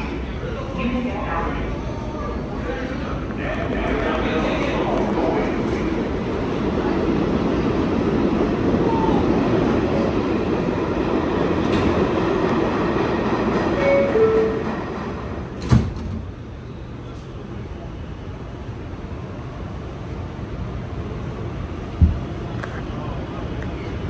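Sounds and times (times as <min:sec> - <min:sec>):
subway station din: 0:00.0 - 0:24.0
train doors closing thump: 0:15.5 - 0:16.4, 0:21.9 - 0:22.4.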